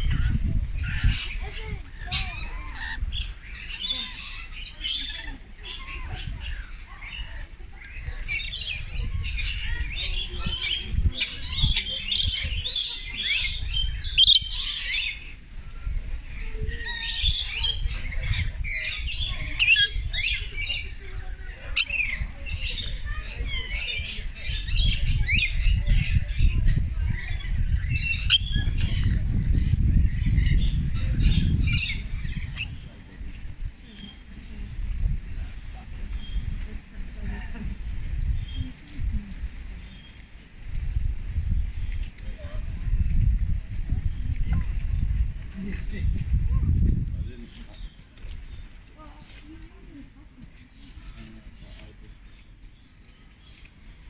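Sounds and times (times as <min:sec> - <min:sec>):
parrots chattering and screeching: 0:00.0 - 0:32.9.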